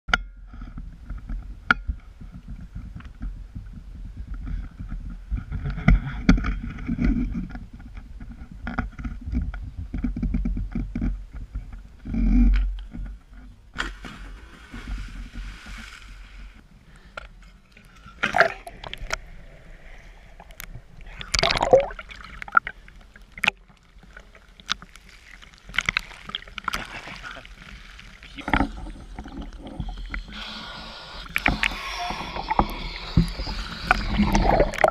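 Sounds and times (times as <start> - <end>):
wind rumbling on microphone: 0.5 - 16.6
water sloshing and splashing: 13.7 - 16.6, 17.8 - 30.2, 32.4 - 34.9.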